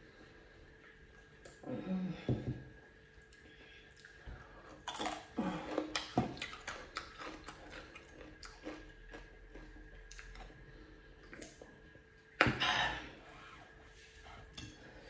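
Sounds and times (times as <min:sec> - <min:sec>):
crunchy chewing of cucumber: 0:04.0 - 0:11.8.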